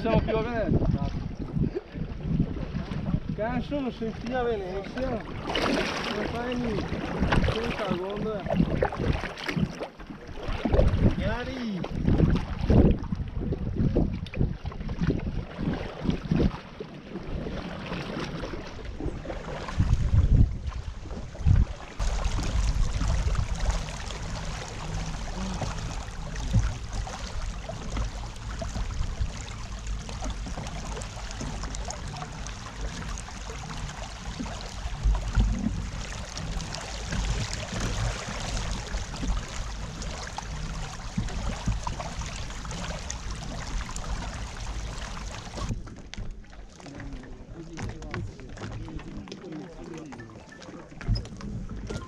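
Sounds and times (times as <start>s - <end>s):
water trickling along hull: 0.0s - 52.0s
steady low rumble: 18.8s - 46.4s.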